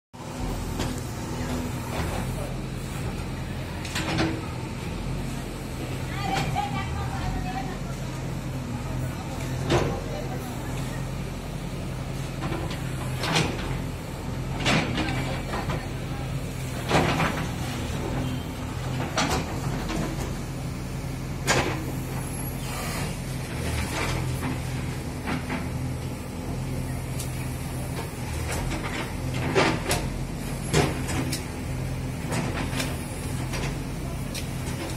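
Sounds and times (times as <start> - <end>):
diesel engine running under load: 0.2 - 34.9.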